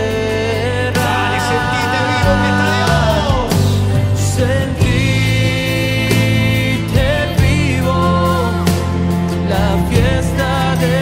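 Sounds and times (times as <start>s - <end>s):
worship band playing: 0.0s - 11.0s
person singing long notes: 1.0s - 4.2s.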